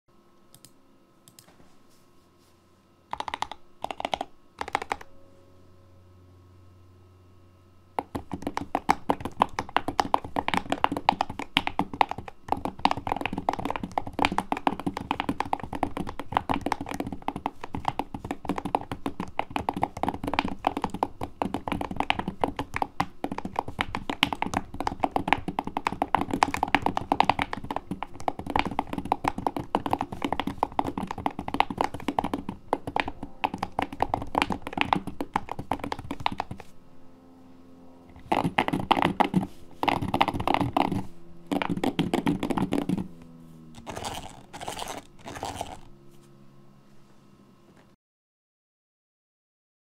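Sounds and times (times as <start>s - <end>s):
mechanical keyboard typing: 3.1s - 5.1s, 8.0s - 36.7s, 38.1s - 43.1s, 43.8s - 45.9s.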